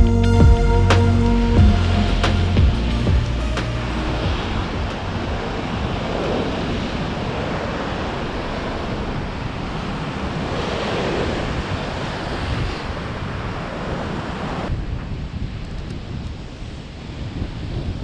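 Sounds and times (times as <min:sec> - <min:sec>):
ocean waves breaking on rocks: 0:03.8 - 0:14.7.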